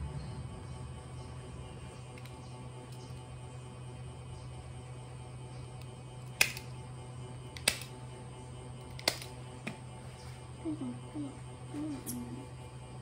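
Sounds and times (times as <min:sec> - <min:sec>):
short wavering voice-like sounds: 0:10.6 - 0:12.5.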